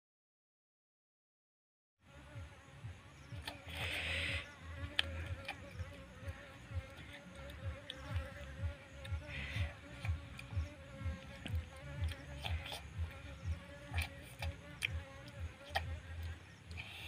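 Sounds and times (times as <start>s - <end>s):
insect buzzing: 2.0s - 17.0s
breathy hiss: 3.5s - 11.0s, 16.4s - 17.0s
faint sharp clicks: 14.0s - 17.0s.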